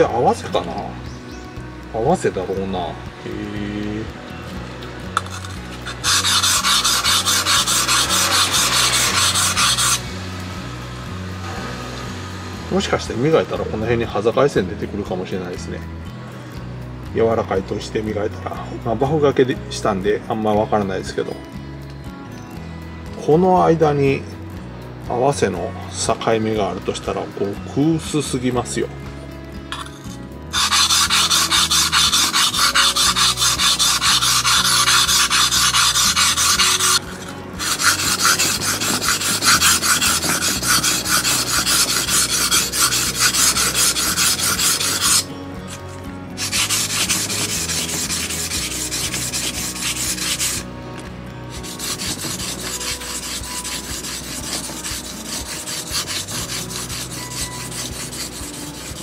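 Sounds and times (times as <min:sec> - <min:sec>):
blade scraping on whetstone: 0:05.2 - 0:10.2, 0:29.7 - 0:50.7, 0:51.5 - 0:59.0.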